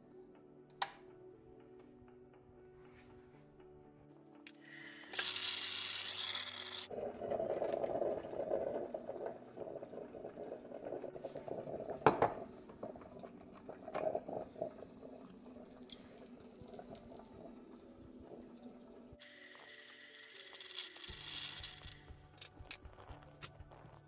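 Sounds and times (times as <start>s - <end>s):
coffee maker gurgling: 4.6s - 24.0s
steam hissing: 19.2s - 22.1s.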